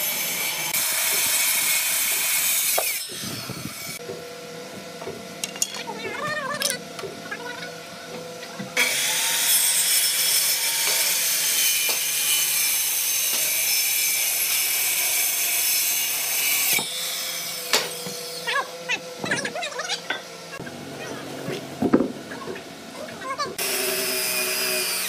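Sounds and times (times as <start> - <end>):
circular saw cutting wood: 0.0 - 4.1, 6.6 - 20.9, 23.5 - 25.0.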